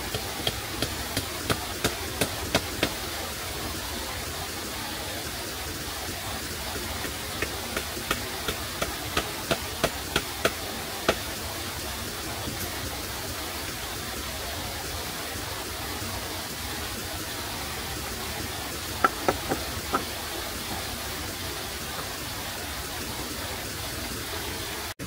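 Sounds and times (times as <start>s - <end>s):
steady rushing hiss: 0.0s - 25.0s
hand tool knocking on wood: 0.1s - 3.0s, 7.4s - 11.2s, 19.0s - 20.1s.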